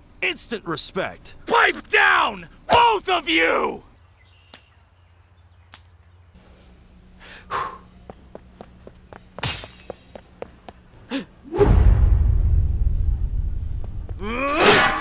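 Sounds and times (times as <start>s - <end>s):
cartoon footsteps: 13.7s - 14.6s.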